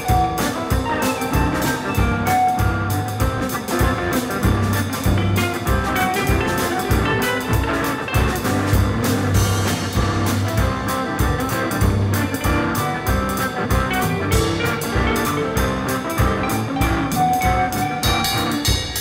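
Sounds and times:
calypso band music: 0.0s - 19.0s
steady drum beat: 0.0s - 19.0s.

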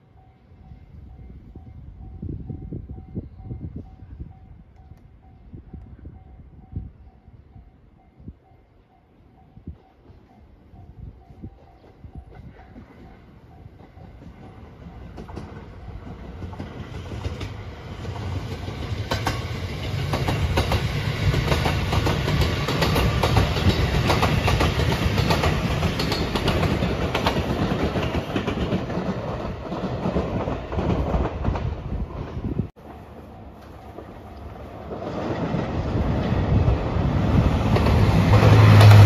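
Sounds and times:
train passing with low rumble: 0.0s - 39.0s
wheels clacking over rail joints: 11.7s - 31.8s.

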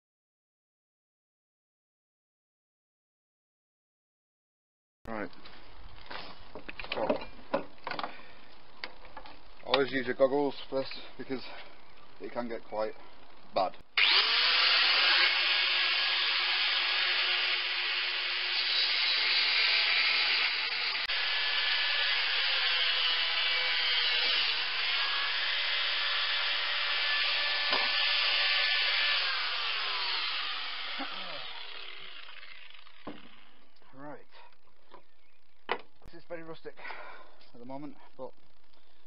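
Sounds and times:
angle grinder whine: 14.0s - 33.8s.

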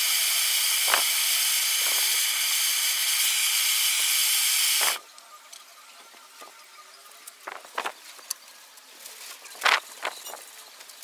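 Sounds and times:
gas blowtorch hissing: 0.0s - 5.0s.

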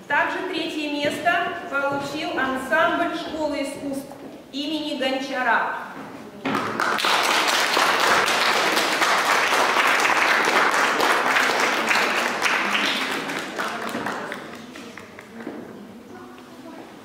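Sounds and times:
audience applauding: 6.6s - 15.4s.

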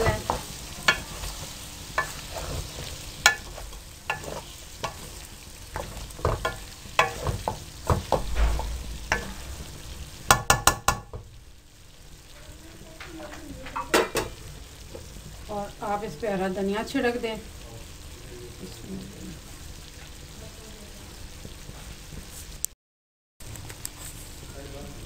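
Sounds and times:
spoon scraping metal pan: 0.0s - 11.0s
faint sizzle: 0.0s - 22.7s, 23.4s - 25.0s.

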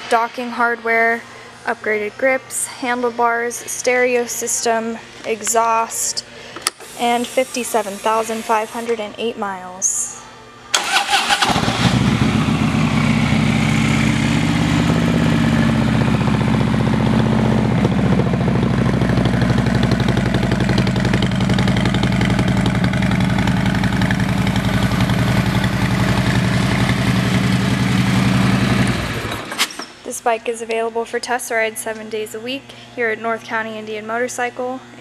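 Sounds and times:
motorcycle engine starting and idling: 10.7s - 29.8s.

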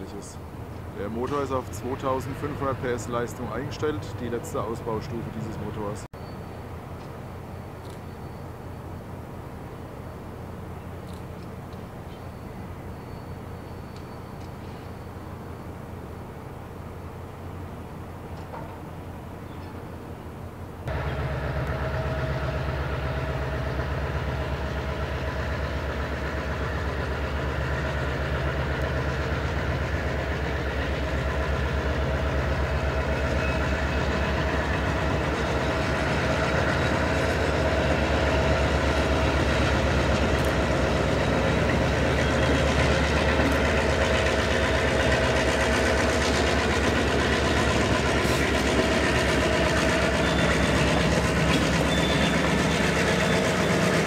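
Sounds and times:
diesel locomotive engine throb: 0.0s - 6.1s, 20.9s - 54.0s
wheels rolling on rails: 20.9s - 54.0s.

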